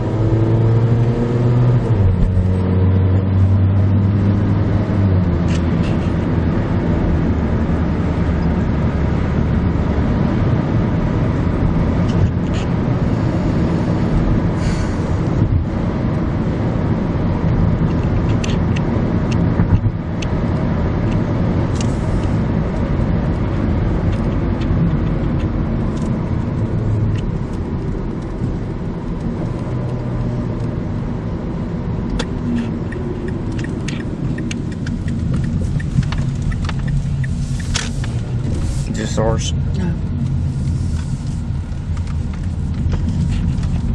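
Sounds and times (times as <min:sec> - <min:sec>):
car road and engine rumble: 0:00.0 - 0:43.9
light ticks: 0:32.9 - 0:38.2.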